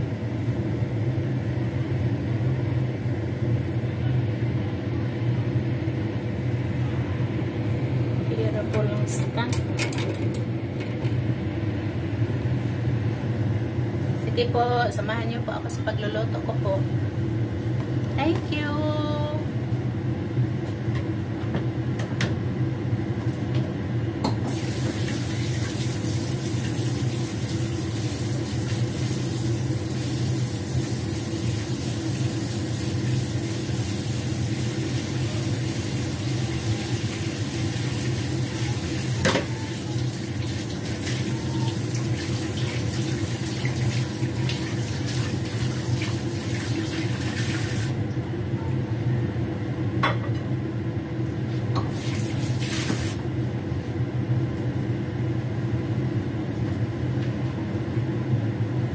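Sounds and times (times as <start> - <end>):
steady low hum: 0.0 - 24.5
tap water running into sink: 24.5 - 32.0, 37.1 - 48.0, 51.8 - 53.2.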